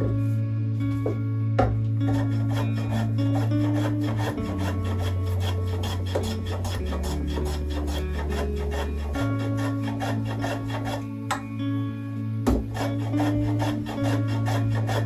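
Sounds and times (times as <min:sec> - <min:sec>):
background music with low notes: 0:00.0 - 0:15.0
hand plane shaving wood: 0:02.0 - 0:11.1, 0:12.5 - 0:15.0.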